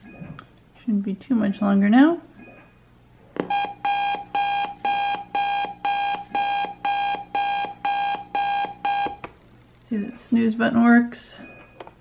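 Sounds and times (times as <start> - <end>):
buzzy electronic alarm beep: 3.5 - 9.2.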